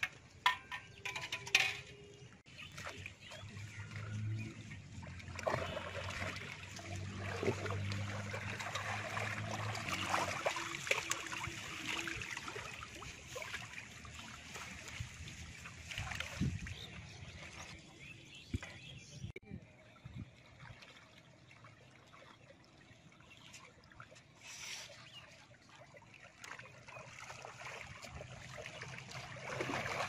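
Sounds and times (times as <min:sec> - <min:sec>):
water dripping and trickling: 0:00.0 - 0:17.8, 0:20.1 - 0:30.0
water sloshing and splashing: 0:00.0 - 0:19.3, 0:19.9 - 0:30.0.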